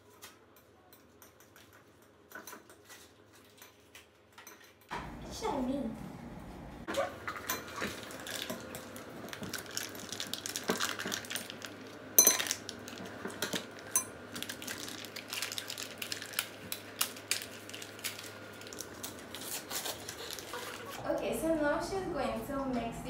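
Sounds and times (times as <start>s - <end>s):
foil wrappers crinkling: 7.7s - 21.0s.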